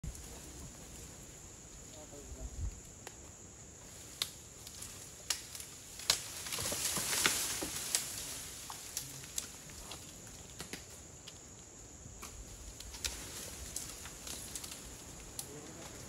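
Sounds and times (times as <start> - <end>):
dry leaves rustling: 0.0 - 11.6, 12.4 - 16.0
twigs snapping: 4.0 - 11.5, 12.2 - 16.0.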